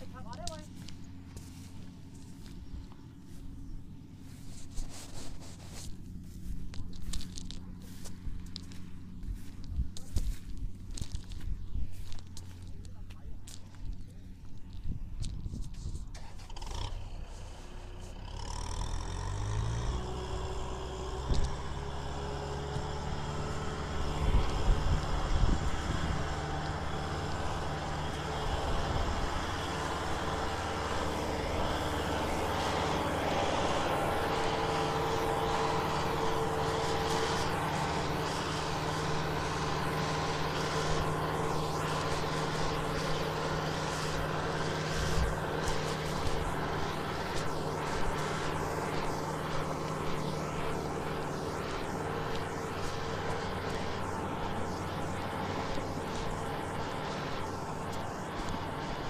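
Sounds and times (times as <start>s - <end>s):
tractor diesel engine under load: 0.0s - 59.0s.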